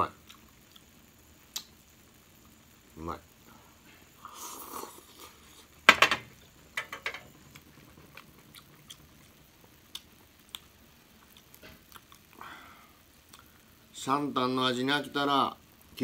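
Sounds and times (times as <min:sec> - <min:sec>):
chewing: 0:00.2 - 0:00.9, 0:07.5 - 0:12.4, 0:13.3 - 0:13.5.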